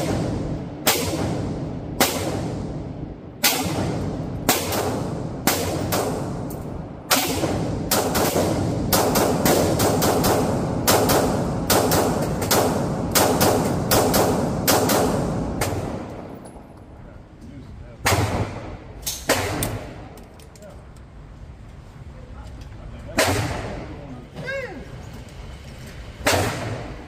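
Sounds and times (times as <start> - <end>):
pistol shots echoing: 7.1 - 16.2.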